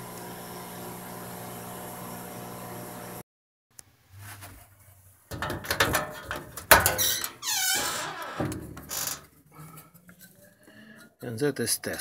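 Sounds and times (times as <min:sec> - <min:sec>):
dryer door clicks and rattles: 0:05.3 - 0:07.4
falling squeak: 0:07.0 - 0:09.2.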